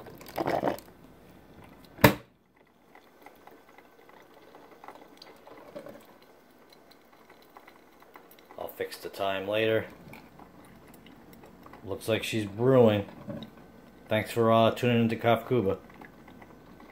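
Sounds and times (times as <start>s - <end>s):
coffee maker brewing: 0.0s - 16.9s.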